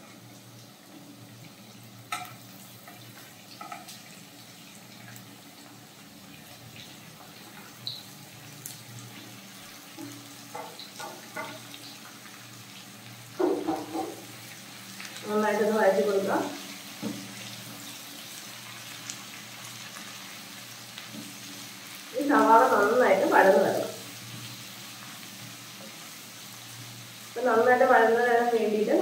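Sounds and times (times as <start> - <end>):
onions frying sizzle: 0.0 - 29.0
spatula knocking on plate: 13.4 - 14.2.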